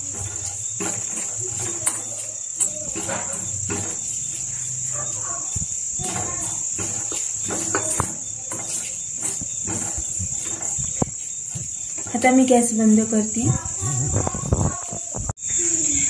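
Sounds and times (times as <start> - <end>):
spoon stirring spices in hot oil: 0.0 - 13.4
knocks and scrapes: 0.0 - 15.4.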